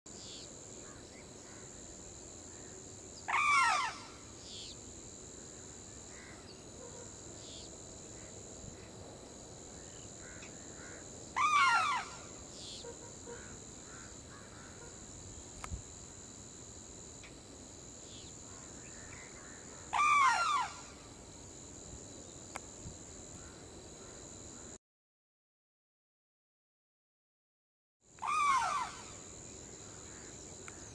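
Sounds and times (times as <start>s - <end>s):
cranes trumpeting: 18.5s - 21.0s, 28.2s - 29.2s.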